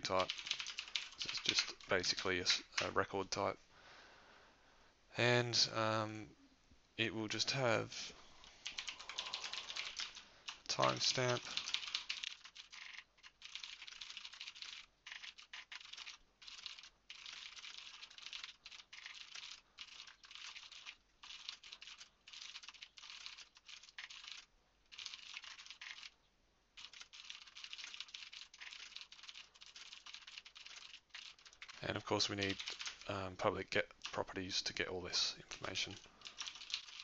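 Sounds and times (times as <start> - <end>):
rapid typing on keyboard: 0.0 - 3.0, 8.6 - 26.2, 26.8 - 33.1, 35.6 - 37.0.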